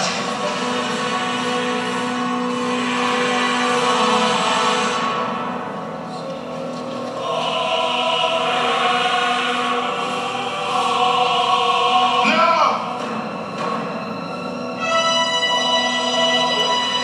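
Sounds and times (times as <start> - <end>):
choir singing long held notes: 0.0 - 17.0.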